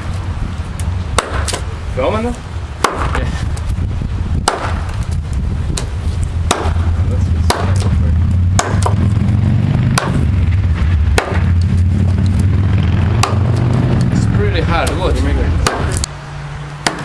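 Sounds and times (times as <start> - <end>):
low rumble: 0.0 - 16.7
blade chopping log: 1.2 - 1.7, 2.8 - 3.2, 4.4 - 5.1, 6.5 - 6.9, 7.5 - 9.1, 9.9 - 10.3, 11.2 - 12.5, 13.2 - 14.1, 15.6 - 16.1.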